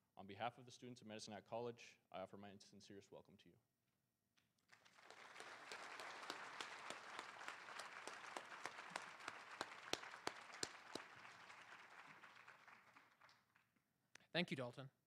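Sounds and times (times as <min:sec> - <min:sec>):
audience applauding: 0:04.7 - 0:13.8
loud single claps: 0:05.0 - 0:13.4.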